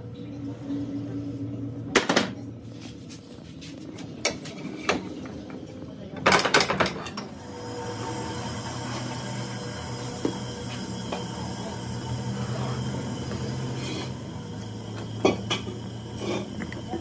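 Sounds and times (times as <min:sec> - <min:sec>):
steady hum: 0:07.2 - 0:17.0.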